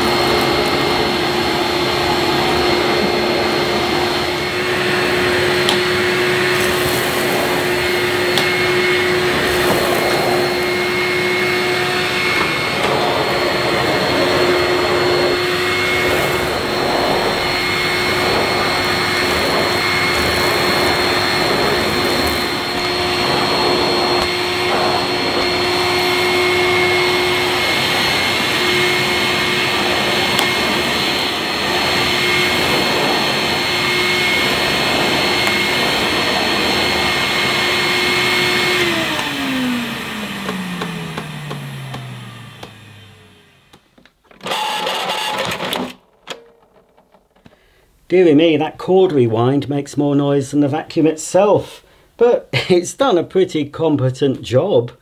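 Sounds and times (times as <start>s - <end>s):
nozzle pushed over carpet: 0.0s - 43.8s
vacuum cleaner running: 0.0s - 47.8s.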